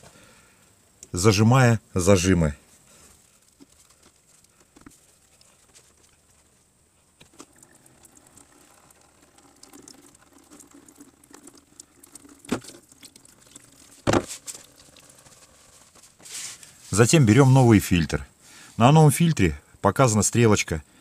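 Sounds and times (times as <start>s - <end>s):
petrol trickling into container: 3.2s - 16.8s.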